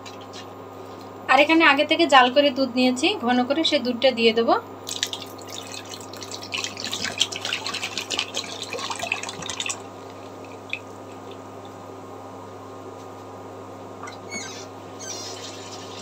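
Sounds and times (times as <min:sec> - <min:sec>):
low steady hum: 0:00.0 - 0:16.0
milk pouring and splashing: 0:04.9 - 0:11.8.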